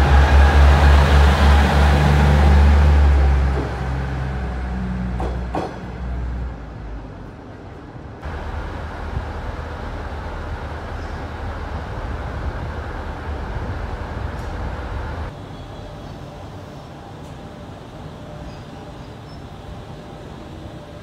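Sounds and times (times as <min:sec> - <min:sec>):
diesel engine droning: 0:00.0 - 0:05.4, 0:08.2 - 0:15.3.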